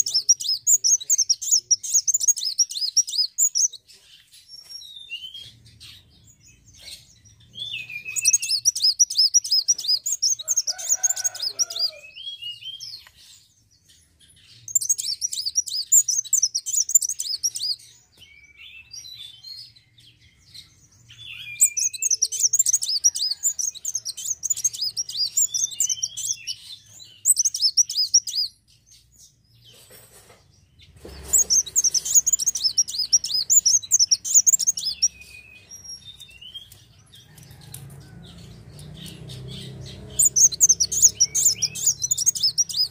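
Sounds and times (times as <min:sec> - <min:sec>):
bird twittering: 0:06.9 - 0:13.1, 0:14.6 - 0:17.8, 0:21.1 - 0:28.6, 0:31.1 - 0:37.7, 0:39.0 - 0:42.9.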